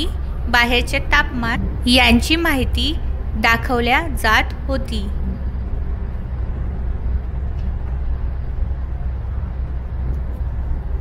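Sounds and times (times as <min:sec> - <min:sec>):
engine and road rumble in coach: 0:05.1 - 0:11.0.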